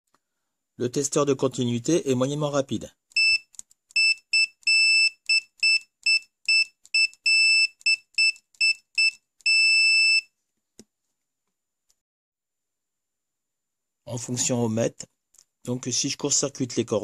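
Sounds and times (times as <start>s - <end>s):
high-pitched multimeter beeps: 3.2s - 10.3s.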